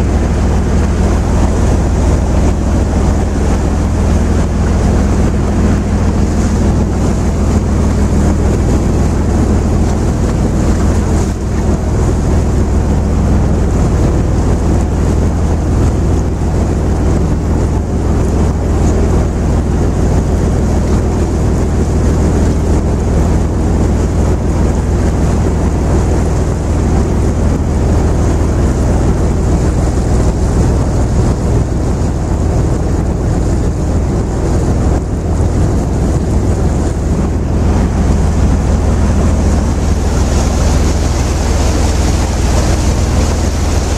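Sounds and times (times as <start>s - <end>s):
boat engine drone: 0.0s - 43.9s
water along hull: 0.0s - 43.9s
wind on microphone: 0.0s - 43.9s.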